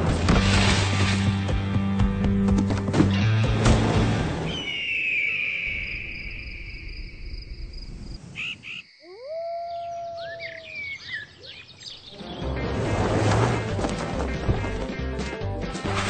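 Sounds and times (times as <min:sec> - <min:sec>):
insects chirping: 0:04.5 - 0:12.2
long falling animal cry: 0:09.0 - 0:11.2
animal howl: 0:09.0 - 0:11.3.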